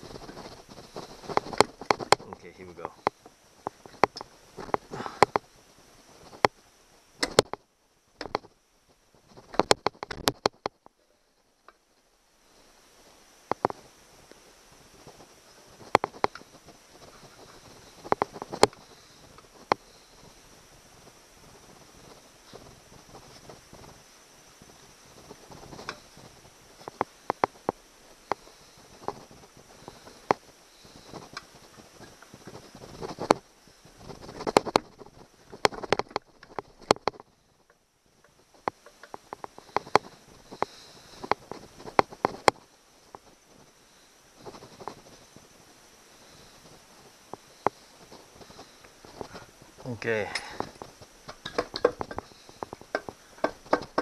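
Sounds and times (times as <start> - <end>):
metal housings clicking and knocking: 50.3 - 54.0
metal parts knocking and clinking: 51.3 - 52.3.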